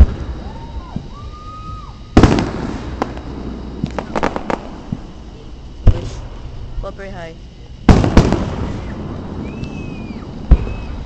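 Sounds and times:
fireworks bangs: 0.0s - 7.0s, 7.8s - 11.0s
crackling pops: 2.2s - 5.1s.

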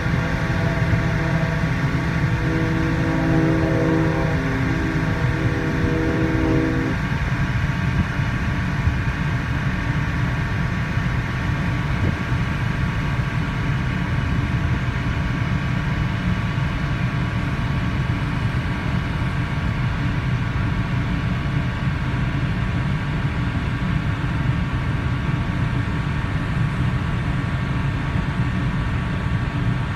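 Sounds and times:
ship whistle: 0.0s - 7.2s
low rumble of ferry under way: 0.0s - 29.9s.

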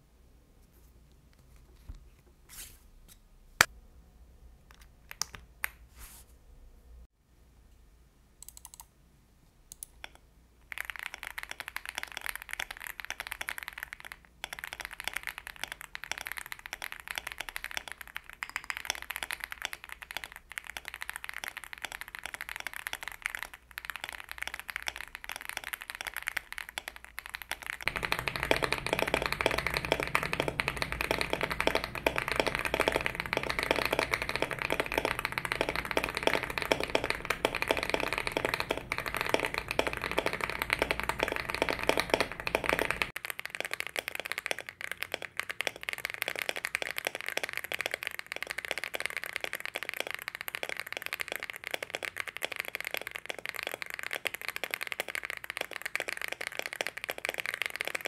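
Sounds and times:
fast keyboard typing: 8.4s - 8.8s, 9.7s - 58.0s.

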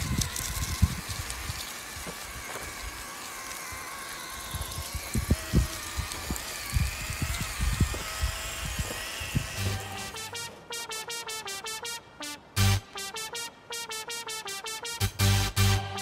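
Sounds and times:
small electric motors whining: 0.0s - 10.5s.

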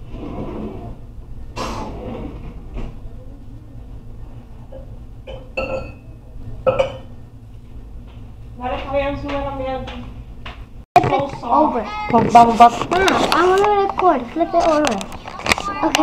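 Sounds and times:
steady low hum: 0.0s - 16.0s
kitchenware knocking and clattering: 4.8s - 6.0s.

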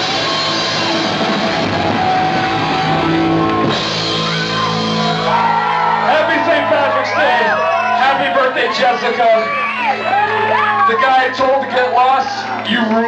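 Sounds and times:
electric guitar: 0.0s - 13.0s
punk rock band playing: 0.0s - 13.0s.

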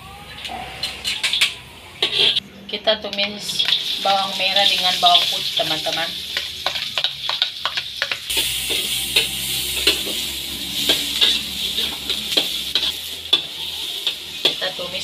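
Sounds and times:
metal spatula scraping a wok: 0.6s - 2.4s, 6.3s - 15.0s
food sizzling in hot oil: 3.4s - 15.0s.

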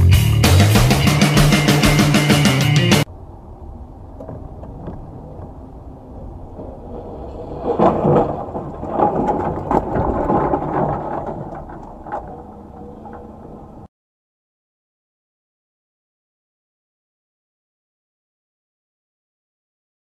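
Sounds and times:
car engine and tyres rumbling: 0.0s - 13.9s
car bumps and knocks: 4.1s - 5.8s.

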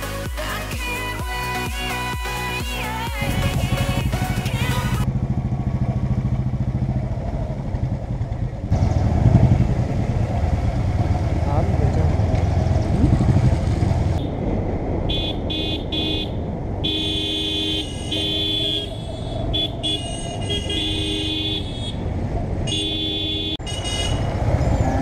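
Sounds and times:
motorcycle engine: 2.5s - 25.0s
wind noise: 12.5s - 17.0s
horn honking: 14.1s - 14.4s, 15.0s - 24.5s.

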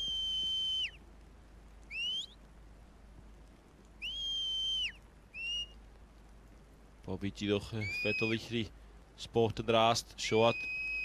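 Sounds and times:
shepherd's whistle commands: 1.9s - 2.3s, 4.0s - 5.8s, 7.8s - 8.4s, 10.3s - 11.0s.

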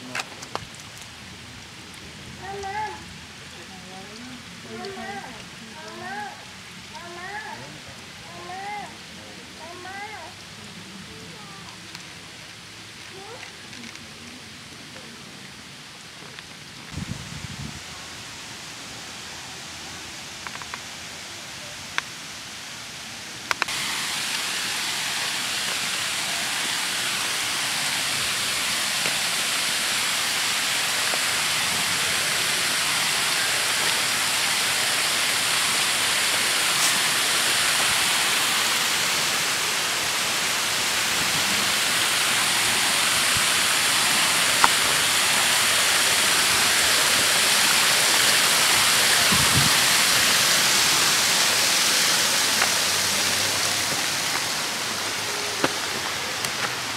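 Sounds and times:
waterfall rushing: 0.0s - 13.4s, 14.5s - 56.9s.

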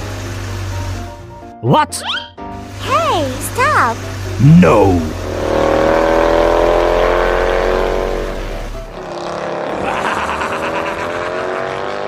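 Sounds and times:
cartoon truck engine pulling away: 2.8s - 12.0s.

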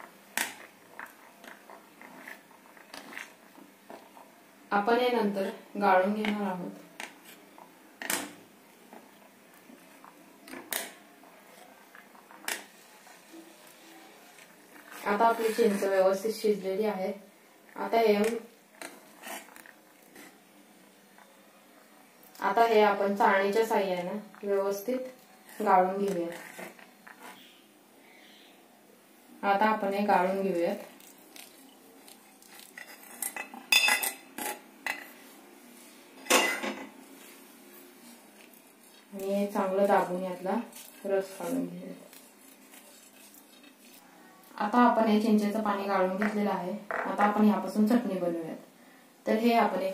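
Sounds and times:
spoon scraping: 14.4s - 16.0s, 18.2s - 20.4s, 25.4s - 27.6s, 31.0s - 35.1s, 38.0s - 44.1s.

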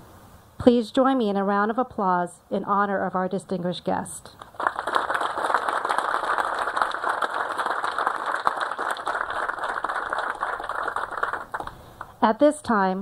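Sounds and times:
audience applauding: 4.4s - 12.1s.

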